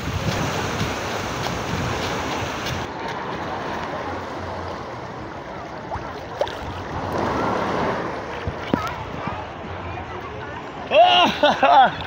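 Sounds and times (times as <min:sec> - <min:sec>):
wind buffeting microphone: 0:00.0 - 0:05.3
sea water splashing: 0:00.0 - 0:09.7.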